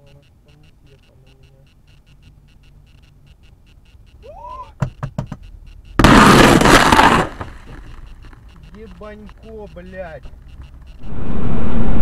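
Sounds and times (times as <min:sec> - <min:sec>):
sharp knocks: 0:04.8 - 0:08.0.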